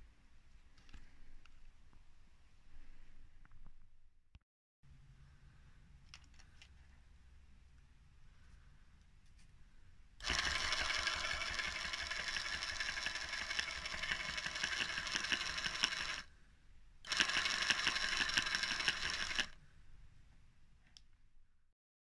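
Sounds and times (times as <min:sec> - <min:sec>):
electric starter motor whirring: 0:10.2 - 0:16.3, 0:17.1 - 0:19.6.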